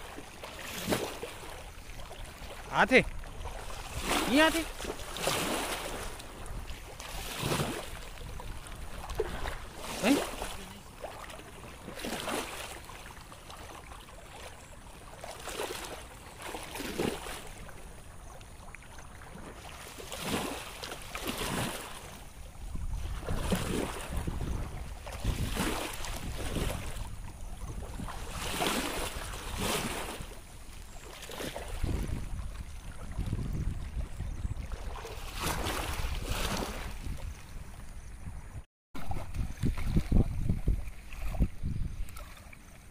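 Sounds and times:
water splashing and sloshing: 0.0 - 42.9
wind rumble on microphone: 1.7 - 9.8, 22.4 - 42.9.

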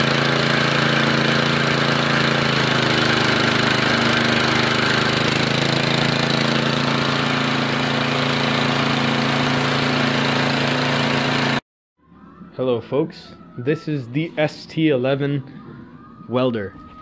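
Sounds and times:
single-cylinder engine running: 0.0 - 11.6.

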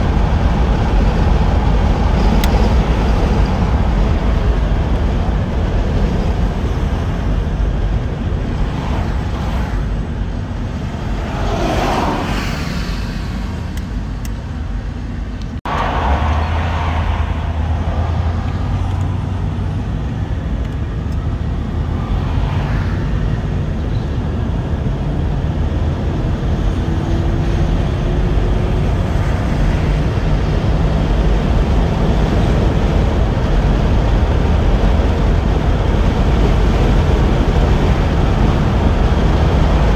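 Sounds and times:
engine and road rumble: 0.0 - 39.9
whooshing swells: 15.7 - 20.4.

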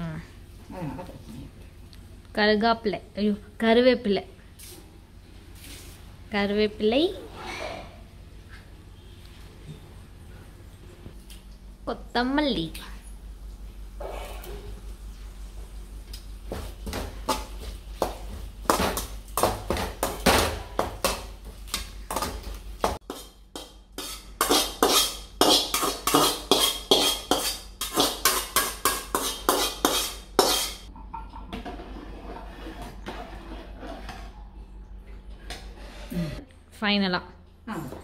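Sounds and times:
spoon clinking and scraping pot: 23.0 - 34.3.

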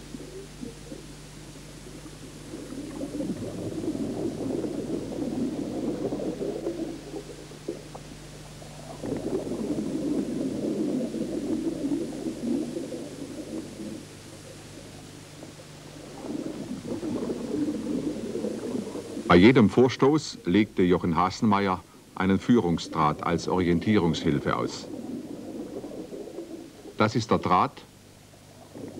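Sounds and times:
steady low hum: 0.0 - 28.9
underwater air bubbles gurgling: 0.0 - 28.9.

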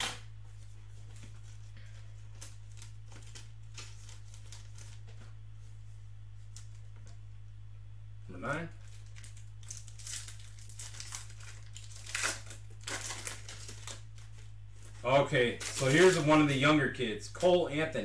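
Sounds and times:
low electrical hum: 0.0 - 18.0
plastic wrapper crinkling: 1.0 - 5.3, 8.8 - 16.6.

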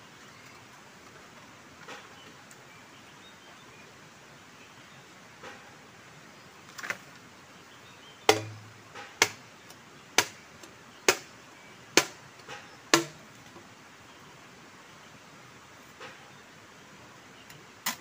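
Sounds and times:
machete chopping bamboo: 8.3 - 9.4, 10.2 - 10.4, 11.0 - 11.3, 12.0 - 13.3.

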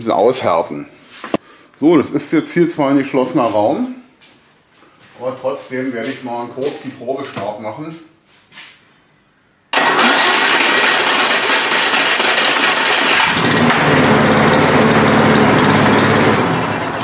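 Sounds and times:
lawn mower engine running: 9.8 - 17.0.

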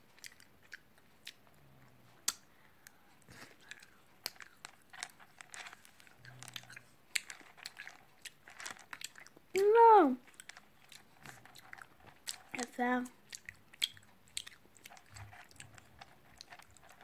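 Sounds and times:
faint chewing: 0.0 - 17.0
candies clicking in a bowl: 3.5 - 17.0.

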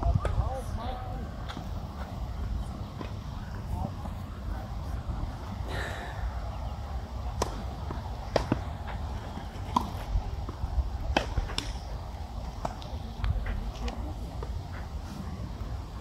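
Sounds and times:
tennis ball pops: 7.4 - 8.7.

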